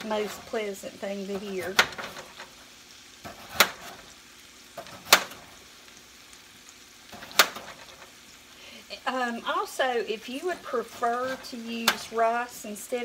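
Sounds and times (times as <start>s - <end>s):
chicken sizzling in skillet: 0.0s - 13.0s
knife slicing potato: 3.2s - 4.0s.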